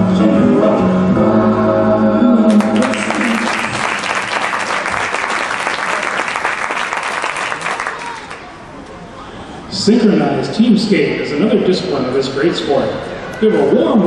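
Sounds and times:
music with singing: 0:00.0 - 0:03.5
audience applause: 0:02.5 - 0:08.5.

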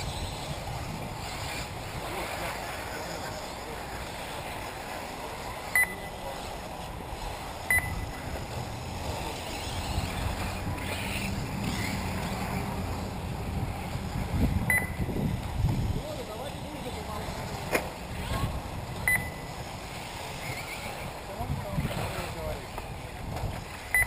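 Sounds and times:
wind rumble on microphone: 0:00.0 - 0:04.9, 0:06.8 - 0:24.0
short electronic beeps: 0:05.7 - 0:06.2, 0:07.7 - 0:08.2, 0:14.7 - 0:15.1, 0:19.0 - 0:19.5.

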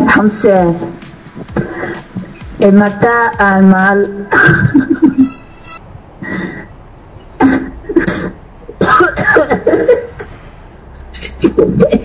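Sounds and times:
brief high tone: 0:05.1 - 0:05.9
breathy cough-like voice bursts: 0:07.4 - 0:10.3.

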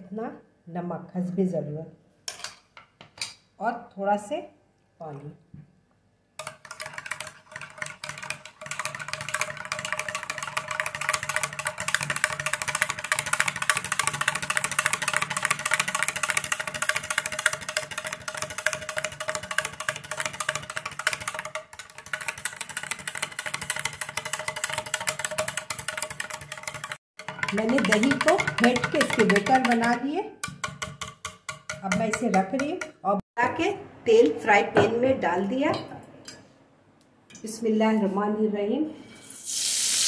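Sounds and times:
whisk clicking and scraping bowl: 0:06.4 - 0:33.0.

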